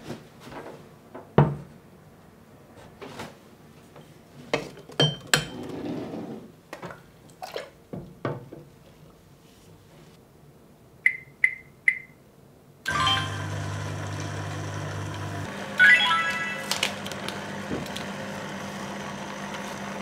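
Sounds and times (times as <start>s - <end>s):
short beeps: 11.1s - 12.2s.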